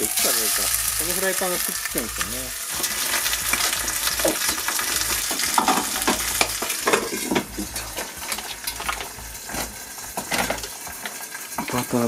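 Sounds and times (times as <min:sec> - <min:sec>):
fish sizzling in a frying pan: 0:00.0 - 0:12.0
utensil scraping and tapping pan: 0:02.7 - 0:11.8.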